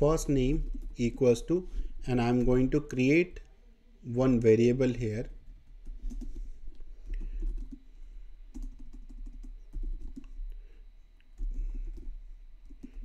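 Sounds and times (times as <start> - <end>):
typing on keyboard: 0.2 - 1.3, 5.5 - 7.8, 8.5 - 10.5, 11.4 - 13.0.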